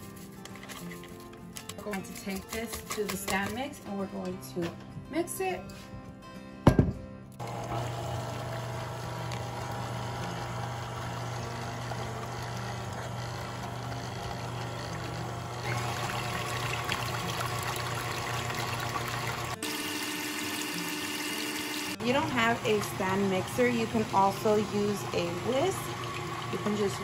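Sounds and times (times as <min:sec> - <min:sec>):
stand mixer motor hum: 0:07.4 - 0:27.0
whisk sloshing liquid: 0:22.8 - 0:27.0.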